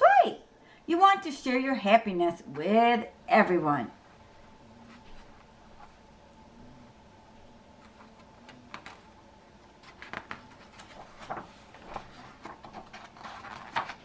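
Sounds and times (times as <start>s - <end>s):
paper page rustling: 7.8s - 14.0s.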